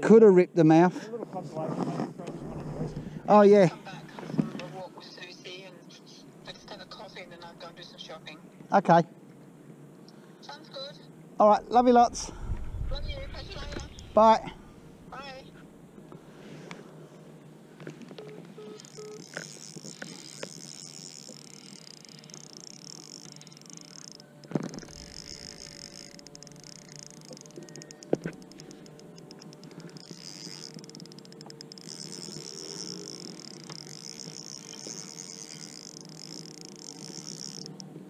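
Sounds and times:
high insect chorus: 18.8s - 37.9s.

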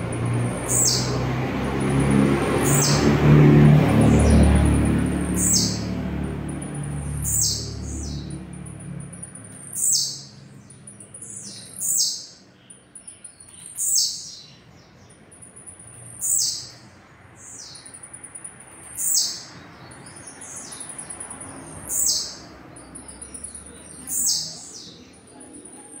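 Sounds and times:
bird singing high falling notes: 0.7s - 12.3s.

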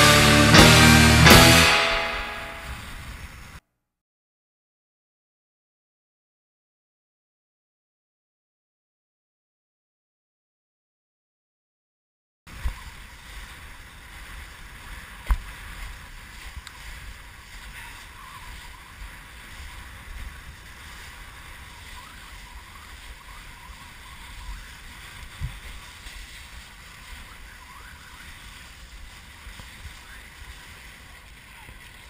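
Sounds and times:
wind rumbling on microphone: 2.0s - 3.6s, 12.5s - 32.0s
water hissing and splashing: 12.5s - 32.0s.

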